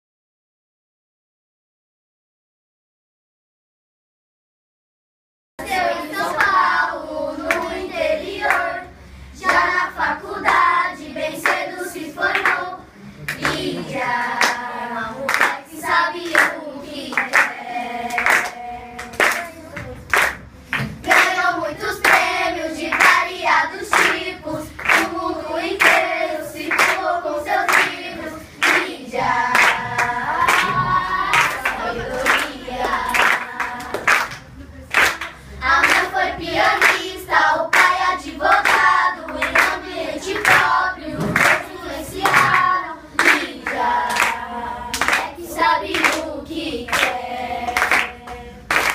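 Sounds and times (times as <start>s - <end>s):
children singing: 5.6s - 19.8s, 21.0s - 34.4s, 35.6s - 48.9s
hands clapping: 6.2s - 6.6s, 7.5s - 7.7s, 11.4s - 11.6s, 12.3s - 12.6s, 13.3s - 14.6s, 15.3s - 15.6s, 16.2s - 21.4s, 22.0s - 22.3s, 22.9s - 23.2s, 23.9s - 25.1s, 25.8s - 26.1s, 26.7s - 28.0s, 28.6s - 37.1s, 37.7s - 46.3s, 46.9s - 48.9s.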